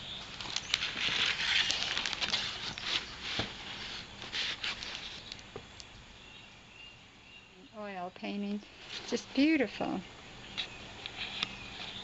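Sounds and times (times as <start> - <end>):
paper rustling and crinkling: 0.2 - 5.5, 8.8 - 9.8, 10.6 - 12.0.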